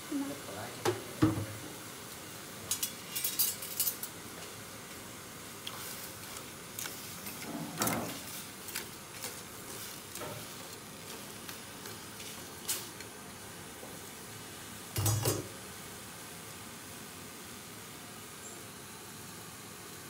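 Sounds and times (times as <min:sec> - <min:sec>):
steady hiss: 0:00.0 - 0:20.0
metal tongs scraping a pot: 0:02.7 - 0:04.1.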